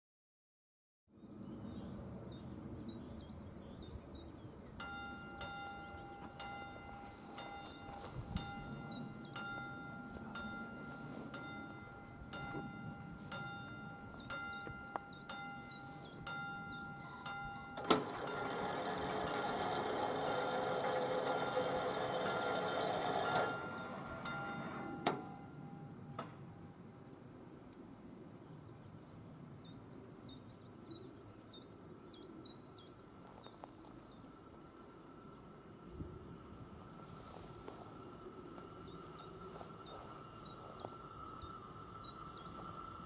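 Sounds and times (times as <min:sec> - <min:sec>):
level crossing warning bell: 0:04.8 - 0:26.4
crossing barriers lowering: 0:15.3 - 0:26.5.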